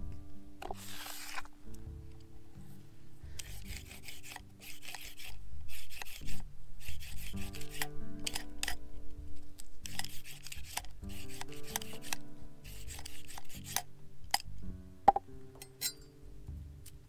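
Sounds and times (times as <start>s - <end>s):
soft background music: 0.0s - 17.0s
rasping scraping strokes: 0.6s - 1.5s, 3.4s - 8.8s, 9.8s - 13.9s.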